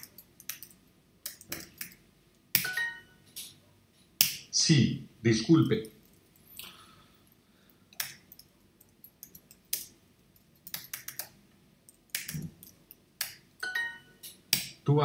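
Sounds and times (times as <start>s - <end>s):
computer keyboard typing: 0.0s - 2.0s, 7.9s - 14.6s.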